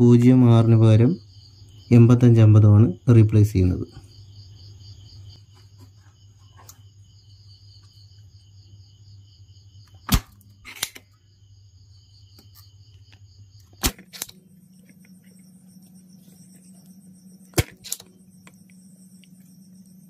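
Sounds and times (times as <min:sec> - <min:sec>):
desoldering pump snapping: 0:09.8 - 0:11.2, 0:13.6 - 0:15.0, 0:17.4 - 0:18.6.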